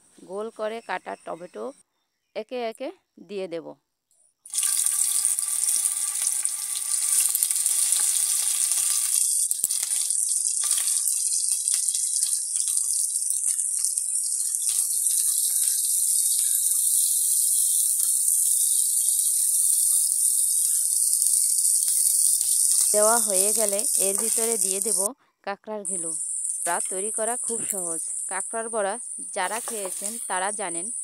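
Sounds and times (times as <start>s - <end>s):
oil sizzling in a frying pan: 4.5s - 25.1s, 25.9s - 31.0s
oil spattering crackles: 4.5s - 25.1s, 29.4s - 30.4s.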